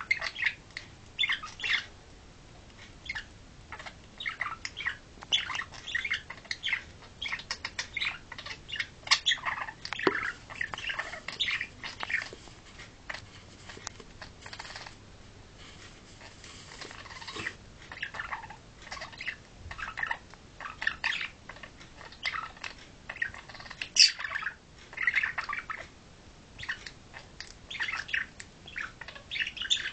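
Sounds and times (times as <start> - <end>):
budgerigars chattering: 0.0 - 0.6, 1.2 - 1.9, 3.0 - 12.3, 16.7 - 25.9, 26.6 - 29.9.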